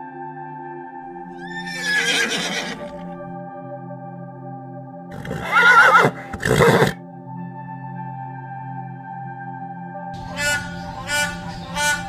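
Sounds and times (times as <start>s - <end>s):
background music: 0.0s - 12.0s
horse whinnying: 1.4s - 3.0s, 5.2s - 7.0s.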